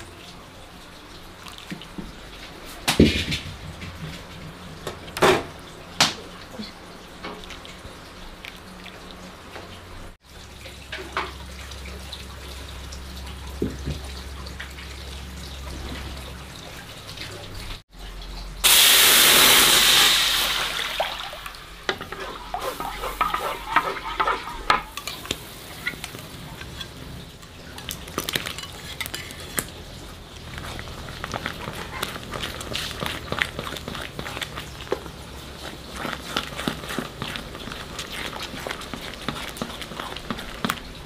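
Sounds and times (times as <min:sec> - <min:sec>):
running water rushing: 0:07.2 - 0:25.0
utensils and dishes clinking: 0:21.8 - 0:41.0.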